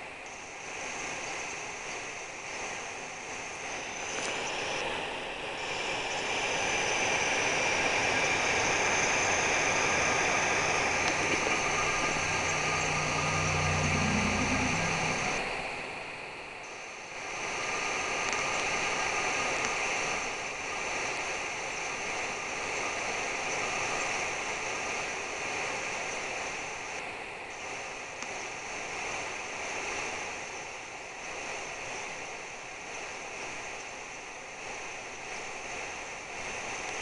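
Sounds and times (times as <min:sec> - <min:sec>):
outdoor rushing noise: 0:03.7 - 0:15.9
low engine hum: 0:08.9 - 0:15.7.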